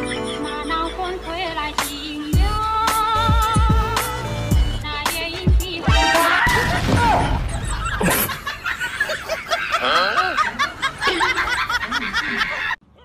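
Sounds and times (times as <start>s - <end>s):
snickering laughter with squeals: 7.4s - 12.8s.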